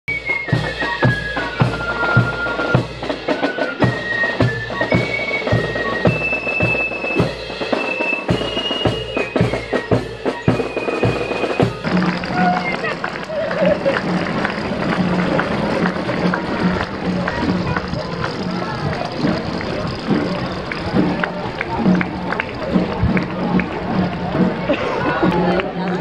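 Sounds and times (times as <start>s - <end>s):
drum beating: 0.1s - 26.0s
bagpipes playing over a drone: 0.2s - 22.9s.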